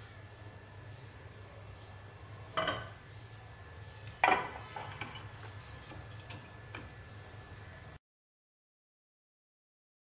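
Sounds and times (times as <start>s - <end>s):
low steady hum: 0.0s - 8.0s
kitchenware clinking: 2.6s - 3.0s, 4.2s - 5.4s.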